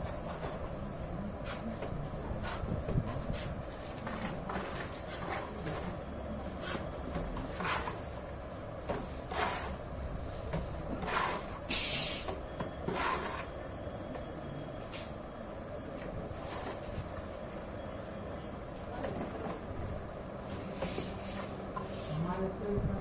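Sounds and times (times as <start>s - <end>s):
trowel scraping mortar: 9.2s - 9.8s, 11.0s - 11.6s, 12.8s - 13.6s.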